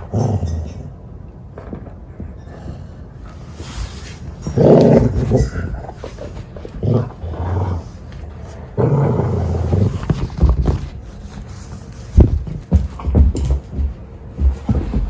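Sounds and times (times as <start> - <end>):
dog growling: 4.4 - 8.1, 8.7 - 10.4.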